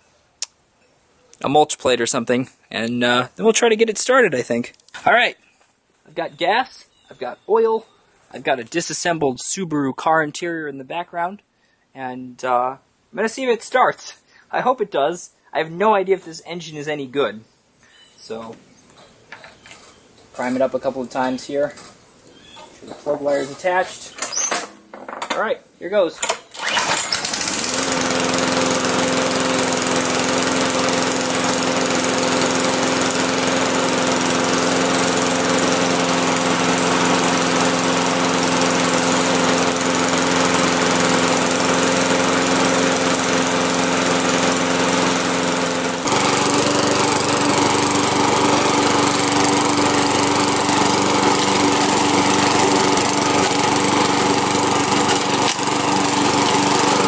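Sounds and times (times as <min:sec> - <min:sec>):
lawn mower engine running: 0:26.6 - 0:57.0.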